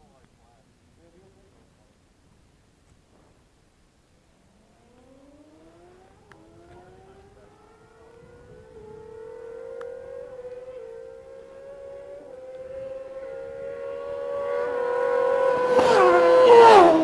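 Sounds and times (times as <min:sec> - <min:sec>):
motorcycle engine revving: 0:04.6 - 0:17.0.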